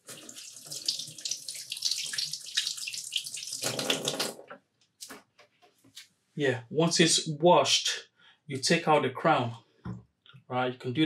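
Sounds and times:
kitchen tap running: 0.0 - 4.5.

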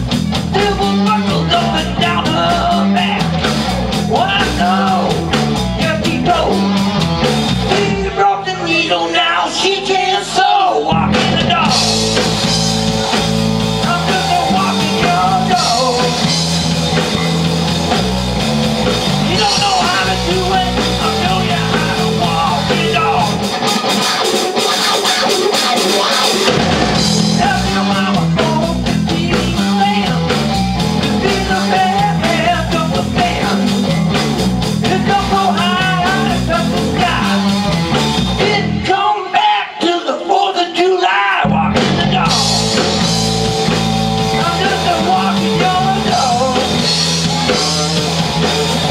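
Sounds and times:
drum kit: 0.0 - 8.2, 10.6 - 39.1, 41.4 - 48.9
electric bass: 0.0 - 8.9, 10.2 - 39.0, 41.4 - 48.9
electric guitar: 0.0 - 39.1, 41.4 - 48.9.

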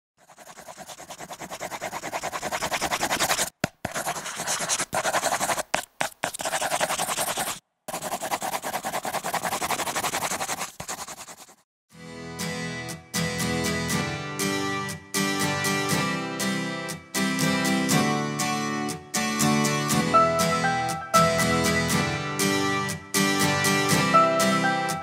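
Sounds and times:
pencil scratching on paper: 0.2 - 11.6
acoustic guitar music: 12.0 - 25.0.

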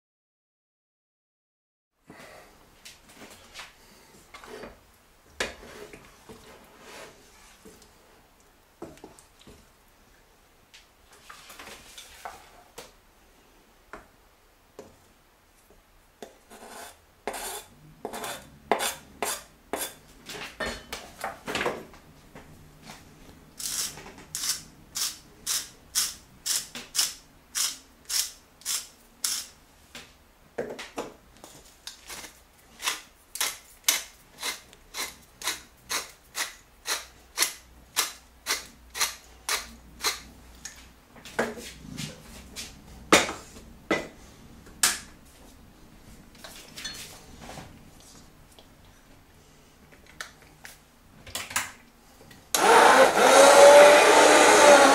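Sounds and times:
hand mill grinding: 23.6 - 29.5, 32.1 - 40.2, 52.6 - 54.9.

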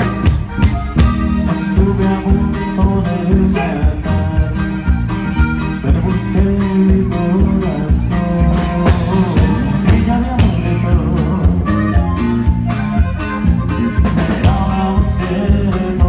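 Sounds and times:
drumbeat: 0.0 - 16.0
live band playing: 0.0 - 16.0
man singing: 1.3 - 5.0, 5.7 - 12.2, 13.6 - 16.0.

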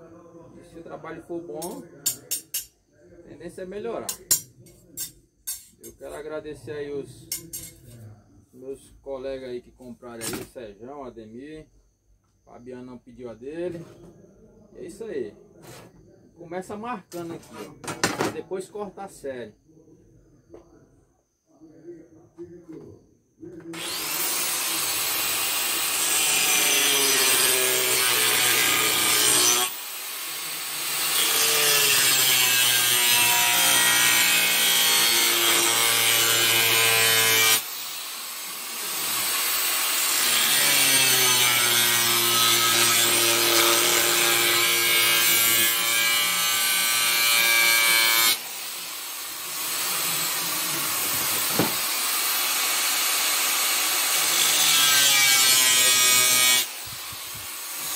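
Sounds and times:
angle grinder cutting steel: 1.6 - 2.7, 4.1 - 6.1, 23.8 - 57.9.

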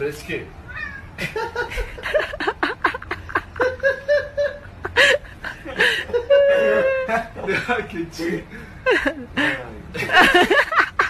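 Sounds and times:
person laughing: 1.2 - 7.9.

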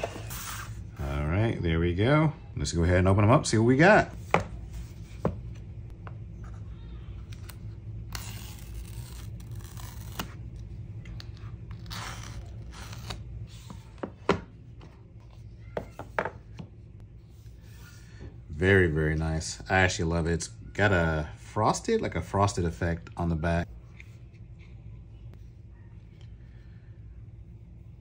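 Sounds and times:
paper strips tearing: 8.1 - 10.4.

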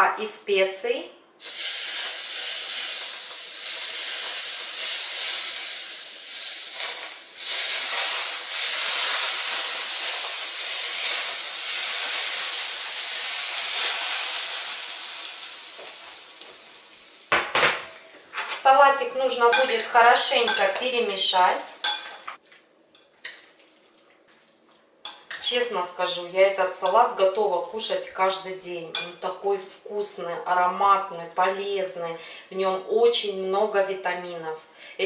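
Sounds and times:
hot oil sizzling: 1.4 - 18.5.

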